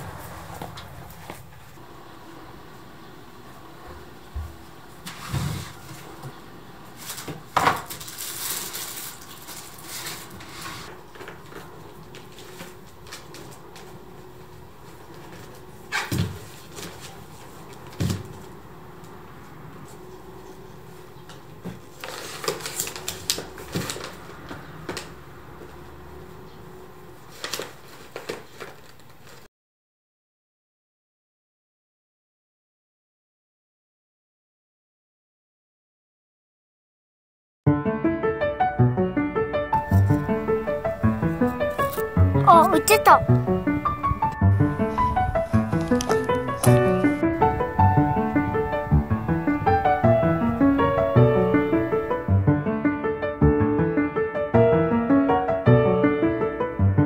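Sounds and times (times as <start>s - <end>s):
rustling: 5.0s - 18.6s, 19.4s - 25.1s, 27.1s - 29.5s.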